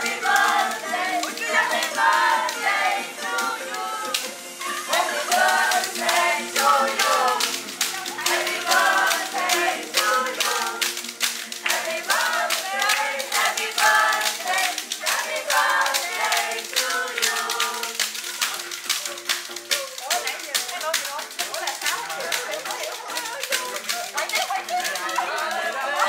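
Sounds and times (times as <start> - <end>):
group of people singing: 0.0 - 18.6, 24.8 - 26.0
backing music: 0.0 - 26.0
hand clapping: 0.0 - 26.0.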